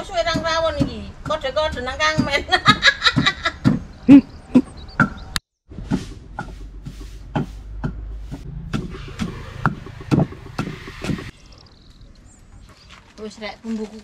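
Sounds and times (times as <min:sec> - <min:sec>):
pestle pounding in a mortar: 0:00.0 - 0:03.8.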